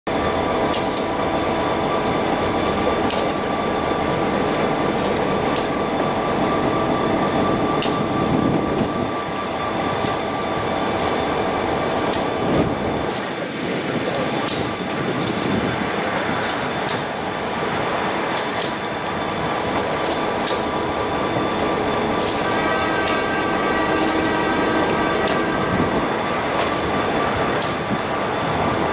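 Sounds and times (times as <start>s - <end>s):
train wheels rumbling on rails: 0.1s - 28.9s
steady hum: 0.2s - 28.9s
sharp wheel clicks: 16.4s - 17.2s, 18.2s - 18.9s.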